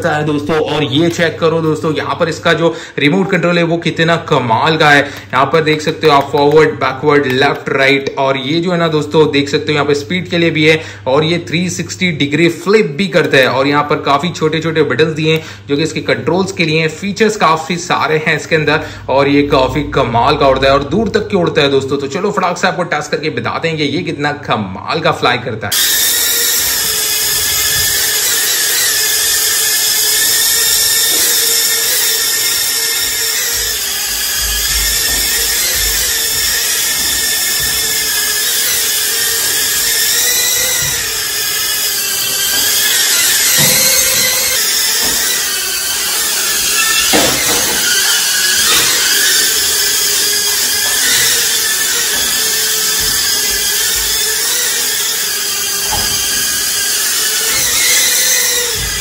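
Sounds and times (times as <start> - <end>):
toy drone propellers whining: 25.7 - 59.0.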